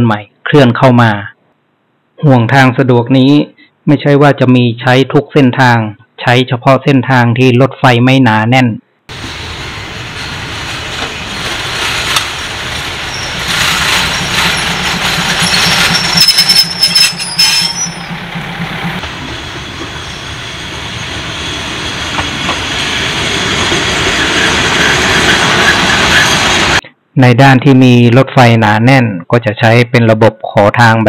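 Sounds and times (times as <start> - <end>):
diesel railcar engine running: 9.1 - 26.8
wheels clattering over rail joints: 10.2 - 21.5
high thin wheel squeal: 13.0 - 26.8.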